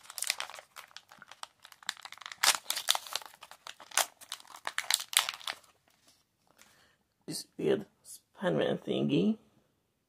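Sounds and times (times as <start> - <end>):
paper wrapper crinkling: 0.0 - 6.6.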